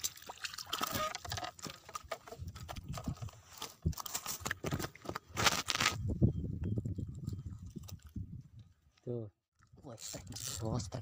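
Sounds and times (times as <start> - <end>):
fish splashing in water: 0.0 - 2.7.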